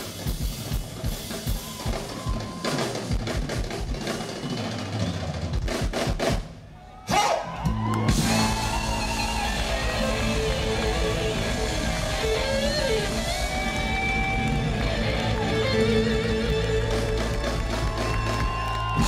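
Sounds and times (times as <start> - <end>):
funk band playing: 0.0 - 6.5, 7.5 - 19.0
electric bass: 7.7 - 19.0
electric guitar: 7.7 - 19.0.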